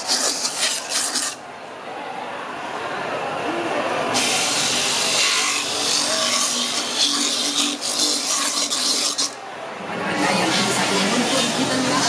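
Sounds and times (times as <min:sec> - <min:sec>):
hands scraping grated coconut in metal bowl: 0:00.0 - 0:01.4, 0:04.2 - 0:09.4, 0:10.2 - 0:12.0.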